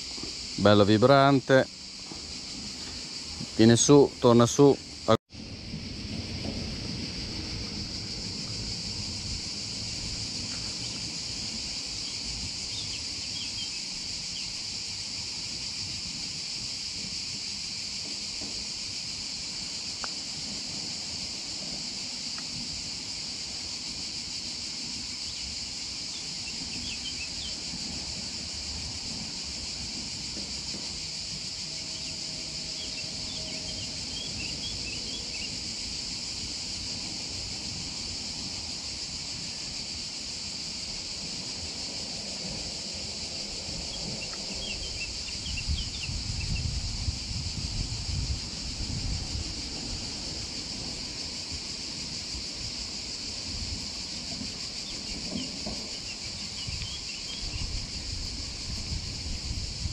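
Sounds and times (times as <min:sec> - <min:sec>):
cicadas buzzing: 0:00.0 - 0:59.9
wind rumble on microphone: 0:04.9 - 0:14.2, 0:42.5 - 0:59.9
small birds chirping: 0:11.9 - 0:14.6, 0:26.1 - 0:27.6, 0:31.8 - 0:35.6, 0:43.8 - 0:46.8, 0:54.8 - 0:57.8.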